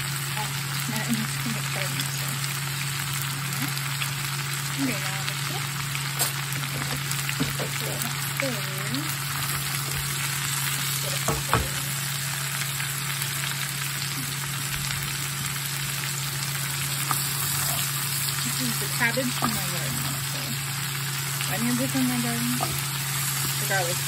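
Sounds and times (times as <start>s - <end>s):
cabbage sizzling in a skillet: 0.0s - 24.0s.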